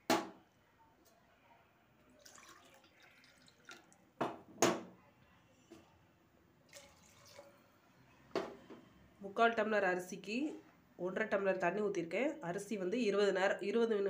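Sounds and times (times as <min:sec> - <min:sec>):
water pouring and splashing: 0:02.2 - 0:04.0, 0:06.7 - 0:07.6.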